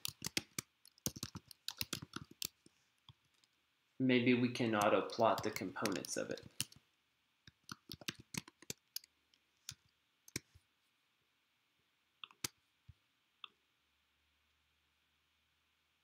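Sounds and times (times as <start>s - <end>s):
soft keyboard typing: 0.0s - 3.6s, 4.6s - 6.8s, 7.5s - 10.6s, 12.2s - 12.6s.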